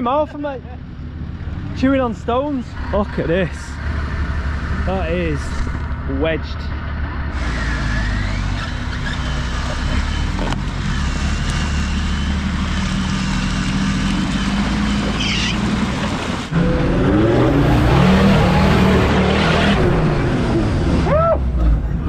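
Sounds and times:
off-road vehicle engine revving: 0.0s - 22.0s.

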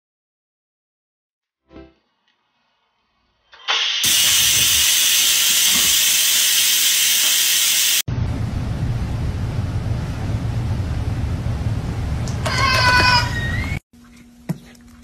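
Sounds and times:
loud steady hiss: 4.0s - 8.0s
low rough noise with hum: 8.1s - 15.0s.

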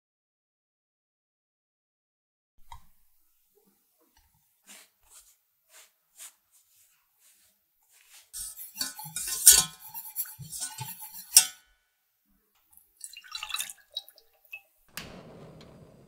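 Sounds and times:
spatula scraping a metal sieve: 4.2s - 11.6s
milk pouring into a pan: 12.7s - 14.7s.

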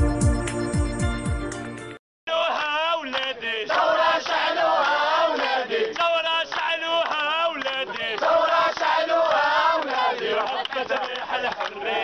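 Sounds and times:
men chanting and shouting: 2.3s - 12.0s.

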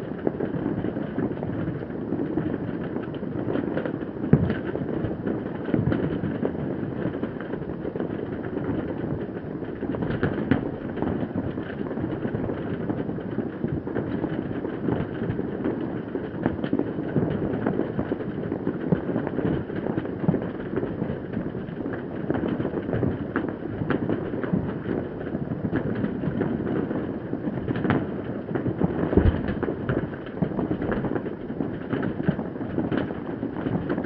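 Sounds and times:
distant fireworks crackling: 0.0s - 34.0s
loud firework bang: 28.6s - 31.0s.

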